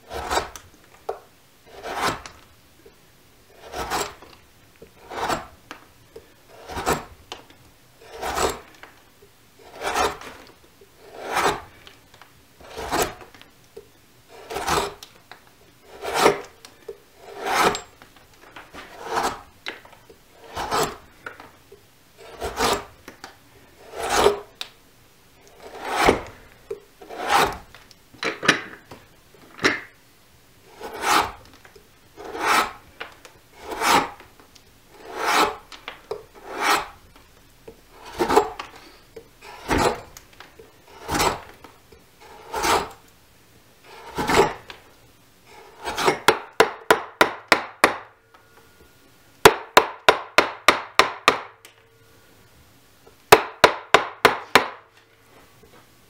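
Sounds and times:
carving blade scraping wood: 0:00.0 - 0:02.5, 0:03.5 - 0:08.9, 0:09.6 - 0:12.0, 0:12.6 - 0:13.5, 0:14.3 - 0:15.2, 0:15.8 - 0:21.4, 0:22.2 - 0:23.0, 0:23.8 - 0:24.7, 0:25.4 - 0:27.9, 0:30.6 - 0:31.6, 0:32.2 - 0:37.2, 0:37.9 - 0:43.1, 0:43.8 - 0:44.8, 0:45.5 - 0:48.0.

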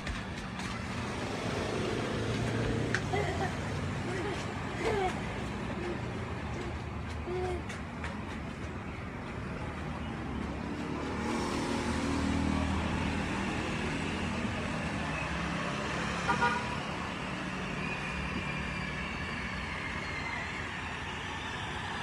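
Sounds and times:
street traffic with motor hum: 0:00.0 - 0:22.0
car horn toot: 0:16.3 - 0:16.8.

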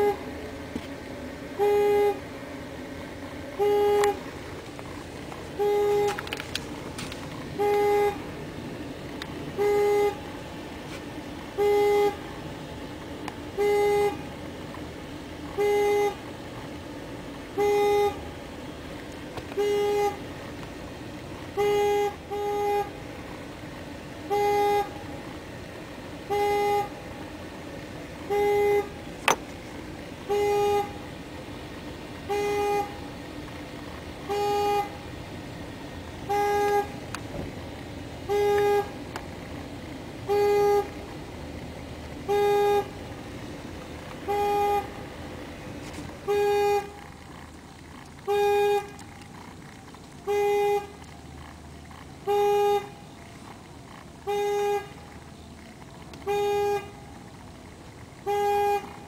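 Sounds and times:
car horn honks: 0:00.0 - 0:00.3, 0:01.6 - 0:02.4, 0:03.5 - 0:04.3, 0:05.5 - 0:08.4, 0:09.5 - 0:10.3, 0:11.5 - 0:12.4, 0:13.5 - 0:14.3, 0:15.5 - 0:16.2, 0:17.5 - 0:18.3, 0:19.4 - 0:20.3, 0:21.5 - 0:23.1, 0:24.2 - 0:25.1, 0:26.2 - 0:27.1, 0:28.2 - 0:29.4, 0:30.2 - 0:31.1, 0:32.2 - 0:33.1, 0:34.2 - 0:35.1, 0:36.2 - 0:37.2, 0:38.2 - 0:39.1, 0:40.2 - 0:41.0, 0:42.2 - 0:43.1, 0:44.2 - 0:45.1, 0:45.8 - 0:47.0, 0:48.3 - 0:49.0, 0:50.2 - 0:51.0, 0:52.2 - 0:53.1, 0:54.2 - 0:55.1, 0:56.2 - 0:57.1, 0:58.2 - 0:59.0.

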